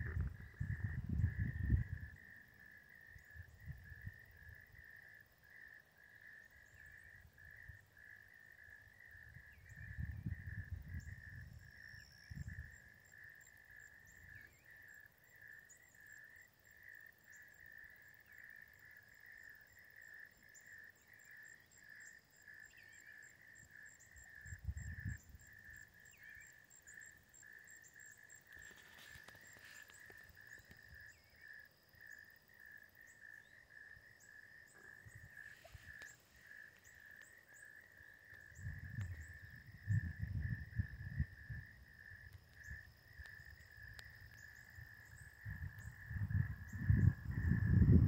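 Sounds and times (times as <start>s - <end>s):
wind gusts on microphone: 0.0s - 2.4s, 9.2s - 12.8s, 24.4s - 25.7s, 38.5s - 48.0s
pulsing insect chorus: 0.0s - 48.0s.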